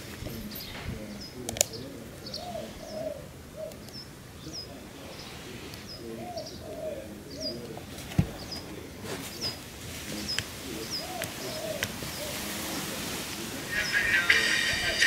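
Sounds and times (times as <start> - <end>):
faint clicks: 0.0 - 2.5, 3.6 - 4.1, 10.3 - 12.0
pigeon cooing: 0.0 - 15.0
hiss: 10.0 - 15.0.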